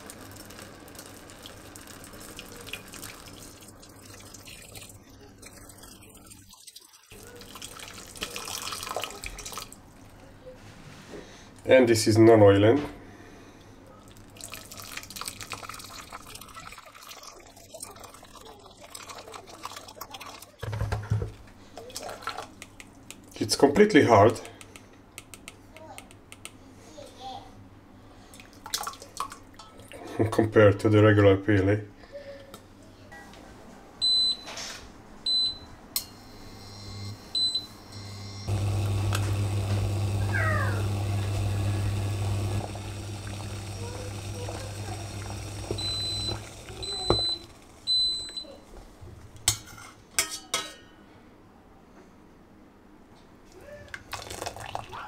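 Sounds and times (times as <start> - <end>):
hot water pouring and splashing: 0.0 - 9.9, 14.1 - 20.6, 21.8 - 22.6, 28.4 - 29.5, 38.5 - 47.9, 54.0 - 55.0
hob humming and hissing: 37.9 - 47.8.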